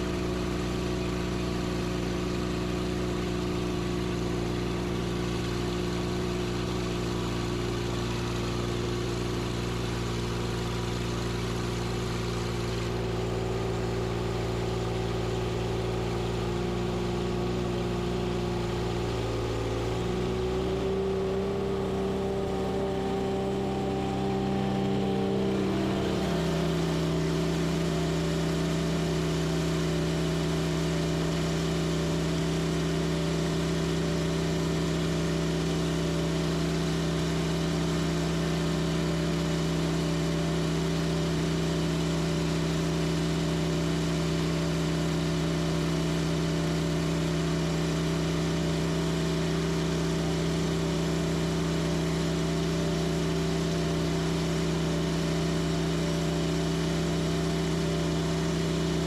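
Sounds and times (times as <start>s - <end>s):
engine running: 0.0s - 59.0s.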